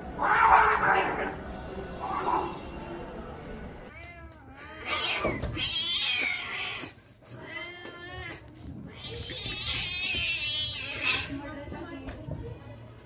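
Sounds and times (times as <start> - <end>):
cats fighting and yowling: 0.0 - 1.4, 3.9 - 11.5.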